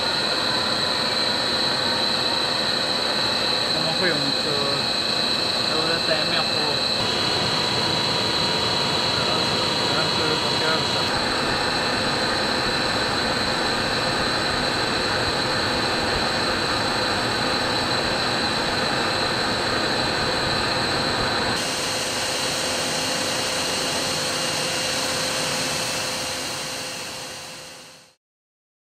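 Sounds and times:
machine noise with high whine: 0:00.0 - 0:28.2
rush of air: 0:10.8 - 0:27.5.

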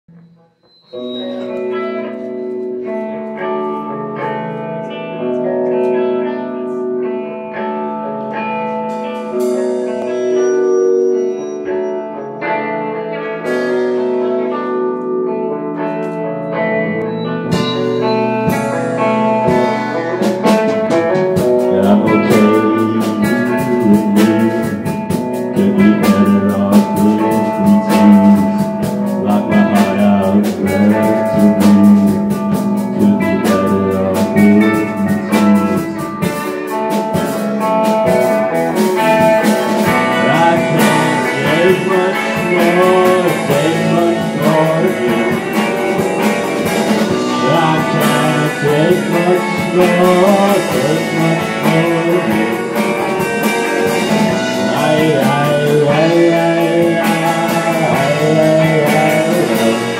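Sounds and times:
electric guitar chords: 0:00.0 - 0:59.9
live rock band playing: 0:00.1 - 0:59.9.

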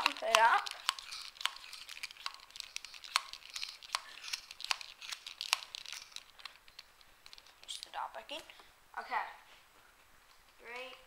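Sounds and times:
plastic toy blaster clicks: 0:00.0 - 0:06.2
scratchy rustle: 0:00.0 - 0:06.4.

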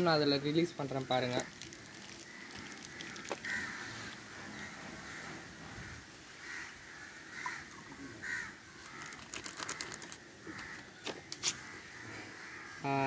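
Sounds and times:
plastic bag crinkling: 0:00.8 - 0:03.8, 0:08.8 - 0:10.2
crows cawing: 0:00.9 - 0:13.0.

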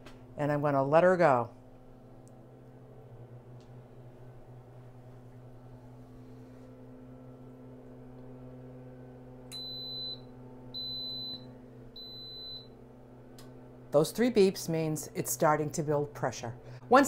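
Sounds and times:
low steady hum: 0:00.0 - 0:17.0
pressure cooker beeping: 0:09.5 - 0:12.7.

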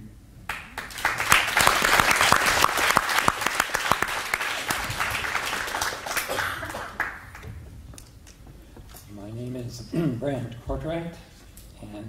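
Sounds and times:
crowd applauding: 0:00.5 - 0:08.4.

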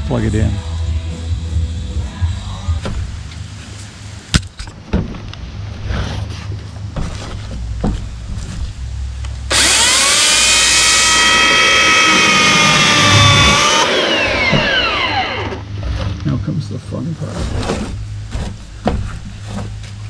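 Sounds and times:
electric chainsaw motor whining: 0:09.5 - 0:15.7.

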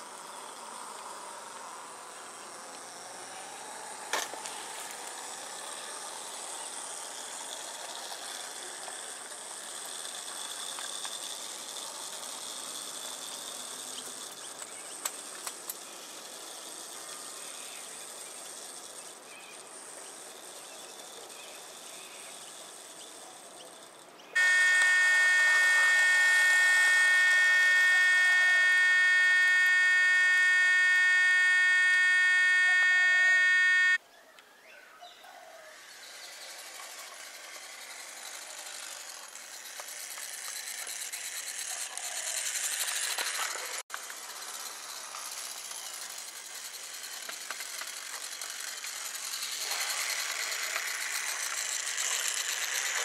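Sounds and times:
model tram gearing whirring: 0:00.0 - 0:34.0, 0:35.7 - 0:53.0
high-pitched buzz: 0:24.4 - 0:34.0.

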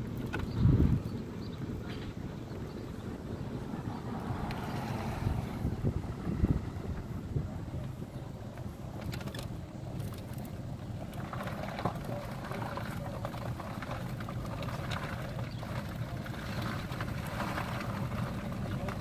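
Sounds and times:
vehicle engine rumble: 0:00.0 - 0:19.0
light crackle and rustle: 0:06.9 - 0:19.0.

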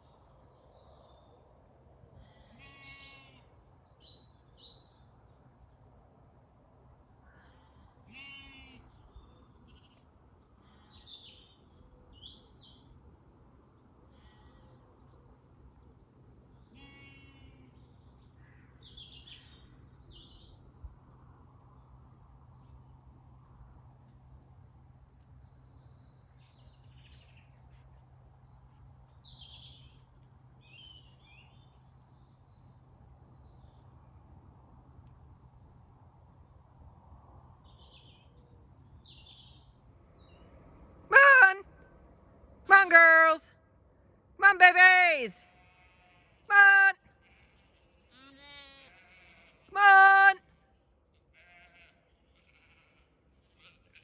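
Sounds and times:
distant sheep bleating: 0:02.2 - 0:03.5, 0:07.3 - 0:08.9, 0:14.1 - 0:14.8, 0:16.7 - 0:17.8, 0:44.5 - 0:50.4, 0:51.2 - 0:54.0
small birds chirping: 0:07.4 - 0:13.0, 0:14.2 - 0:20.7, 0:25.1 - 0:34.2, 0:37.6 - 0:40.7.

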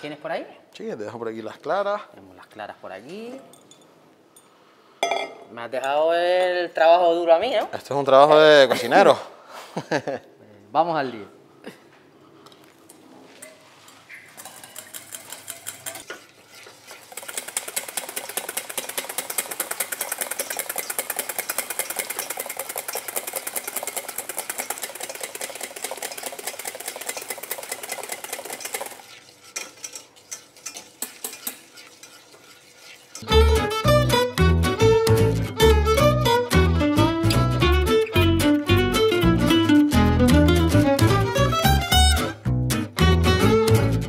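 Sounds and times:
wire whisk beating in metal bowl: 0:14.4 - 0:33.3
whisk taps: 0:17.1 - 0:33.3
music: 0:33.2 - 0:44.0.

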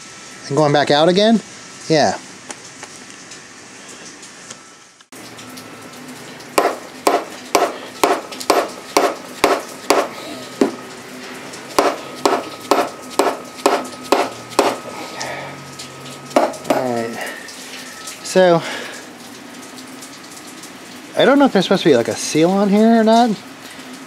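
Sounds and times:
hand tool tapping on metal: 0:06.6 - 0:10.8, 0:11.8 - 0:14.8, 0:16.3 - 0:17.0.

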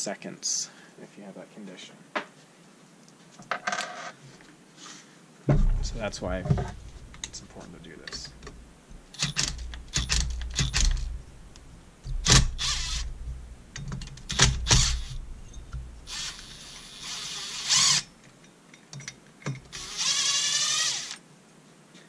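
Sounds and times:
cordless driver whir and clatter: 0:12.2 - 0:13.1, 0:14.3 - 0:15.2, 0:19.7 - 0:21.2.

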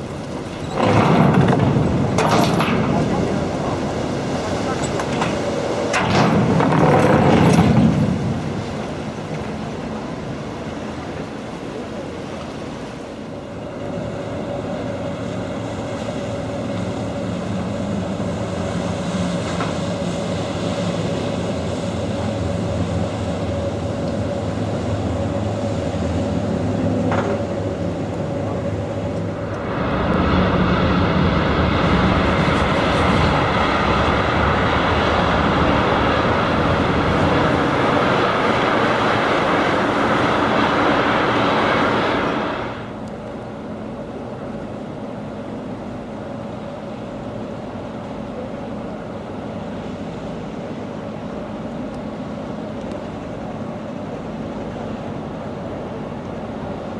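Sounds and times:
boat engine running: 0:00.0 - 0:56.9
churning water: 0:00.0 - 0:56.9
wind noise: 0:28.3 - 0:43.0.

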